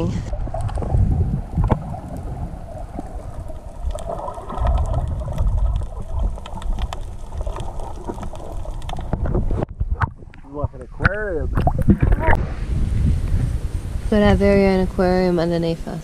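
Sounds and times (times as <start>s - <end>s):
muffled underwater rumble: 0.0s - 16.0s
clicks and crackles: 0.2s - 12.4s.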